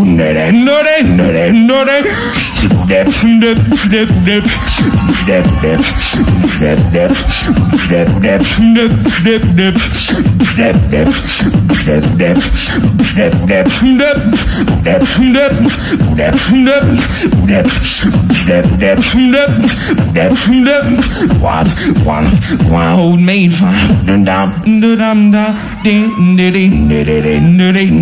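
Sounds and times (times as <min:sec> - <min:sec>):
hummed bass line: 0:00.0 - 0:25.1
person beatboxing: 0:00.0 - 0:28.0.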